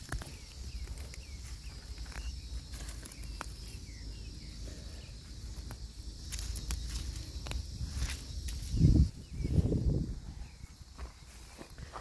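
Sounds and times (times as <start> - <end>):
weeds crackling as pulled: 0.0 - 3.8, 5.6 - 8.9
high insect buzz: 0.0 - 12.0.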